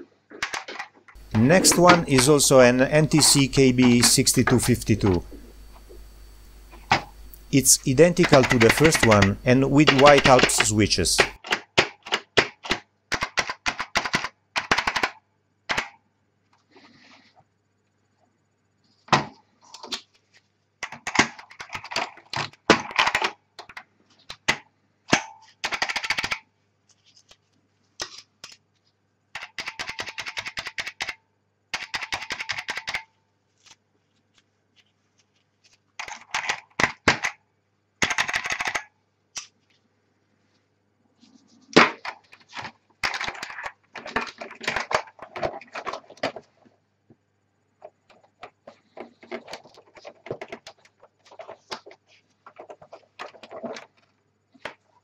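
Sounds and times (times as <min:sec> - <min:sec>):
mechanical keyboard typing clicks: 0:00.4 - 0:15.9, 0:25.6 - 0:26.4, 0:29.4 - 0:31.2, 0:31.8 - 0:33.1, 0:38.0 - 0:38.9.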